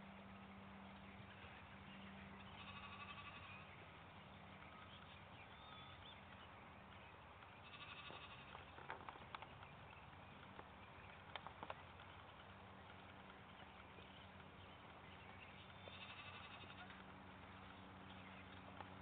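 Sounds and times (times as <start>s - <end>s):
low steady hum: 0.0s - 19.0s
distant livestock bleating: 2.4s - 3.7s, 7.6s - 8.8s, 15.8s - 17.0s.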